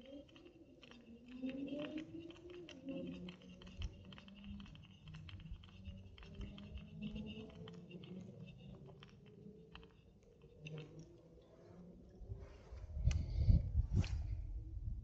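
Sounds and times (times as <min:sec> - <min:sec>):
fishing reel clicking: 0:00.0 - 0:11.0.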